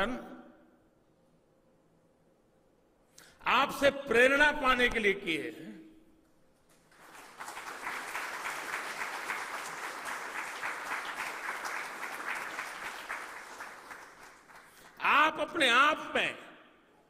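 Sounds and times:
people applauding: 6.6 - 15.2.

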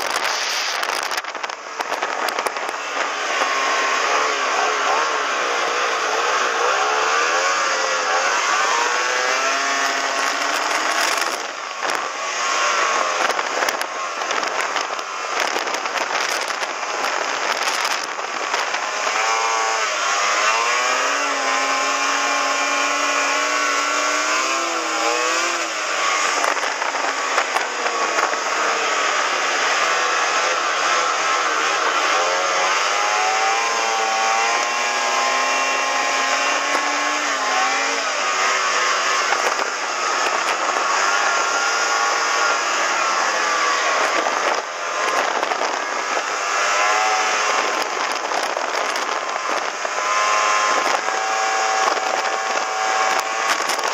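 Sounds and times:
rapid crackling noise: 0.0 - 6.8, 9.6 - 18.8, 47.1 - 50.0, 50.7 - 53.9
snowmobile engine revving: 0.0 - 53.9.

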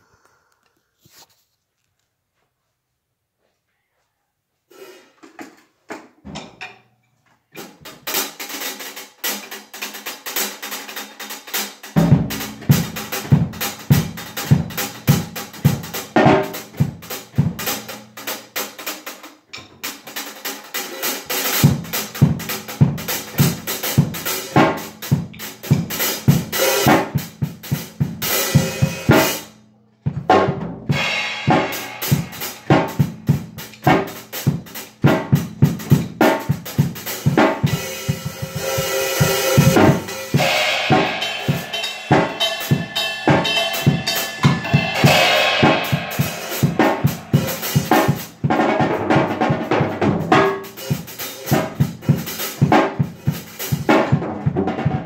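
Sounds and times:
snare drum: 7.9 - 18.8, 20.1 - 29.5, 30.3 - 55.0
bass drum: 12.0 - 17.7, 30.1 - 55.0
cymbals: 20.8 - 29.5, 30.9 - 48.5, 50.3 - 54.0.

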